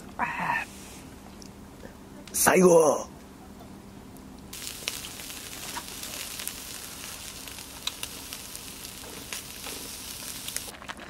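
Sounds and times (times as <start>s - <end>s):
meat sizzling on a grill: 4.5s - 10.7s
charcoal popping and crackling: 4.5s - 11.0s.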